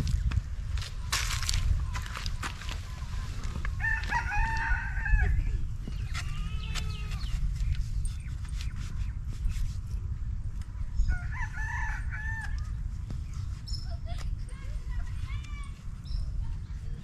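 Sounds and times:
rooster crowing: 3.8s - 5.4s, 11.1s - 12.6s.

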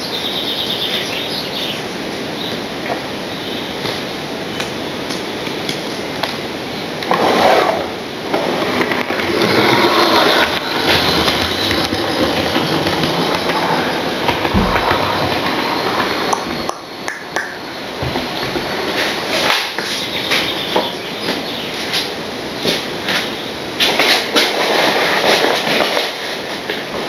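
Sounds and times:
model train running on track: 8.2s - 17.0s.

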